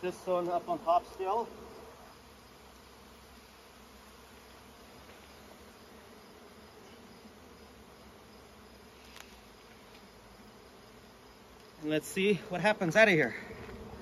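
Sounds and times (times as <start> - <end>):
honeybees humming: 0.0 - 14.0.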